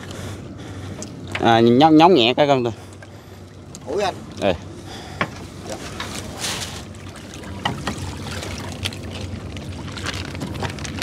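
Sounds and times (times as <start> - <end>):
steady low hum: 0.0 - 11.0
water splashing and dripping: 5.7 - 11.0.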